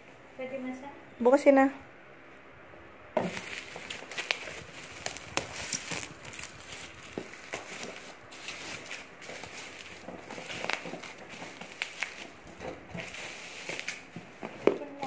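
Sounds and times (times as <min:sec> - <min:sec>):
bubble wrap rustling and crackling: 0:03.2 - 0:15.0.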